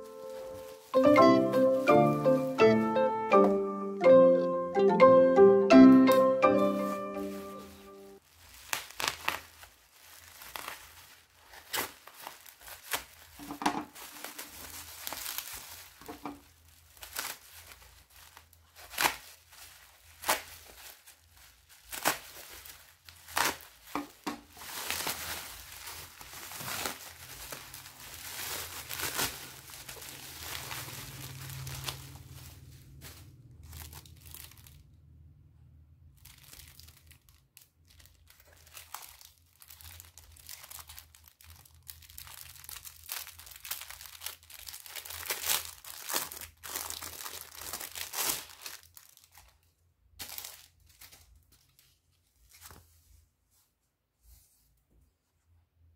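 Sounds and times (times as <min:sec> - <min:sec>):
bubble wrap crinkling and tearing: 0:00.0 - 0:03.6, 0:06.0 - 0:35.0, 0:36.0 - 0:53.2.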